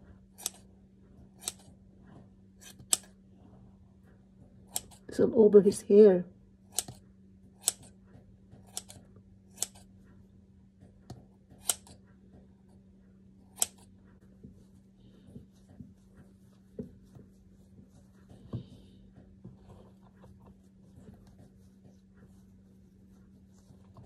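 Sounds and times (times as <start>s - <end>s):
steady low hum: 0.0s - 24.0s
scissors snipping hair: 0.4s - 0.7s, 1.4s - 1.7s, 2.6s - 3.1s, 4.7s - 5.1s, 6.7s - 7.0s, 7.6s - 7.9s, 8.6s - 9.9s, 11.6s - 12.0s, 13.5s - 13.9s.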